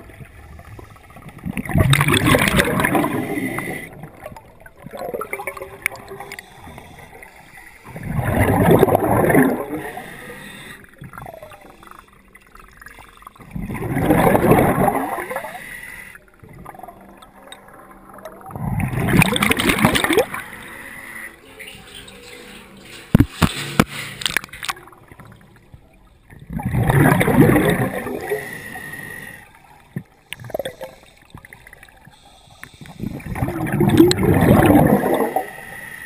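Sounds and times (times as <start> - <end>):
exhaled bubbles rushing: 0.0 - 7.1, 7.9 - 10.0, 12.7 - 15.4, 18.1 - 20.5, 26.3 - 28.4, 33.0 - 35.5
regulator inhales: 30.3 - 33.4.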